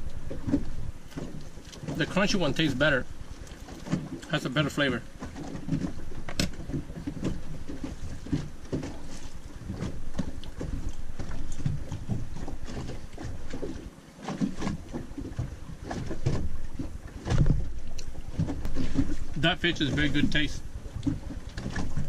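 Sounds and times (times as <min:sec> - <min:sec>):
water lapping against boat hull: 0:00.0 - 0:22.0.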